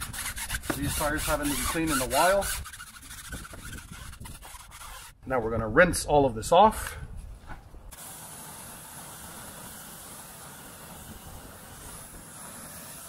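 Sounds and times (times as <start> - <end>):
pressure washer spraying water: 7.9 - 13.0.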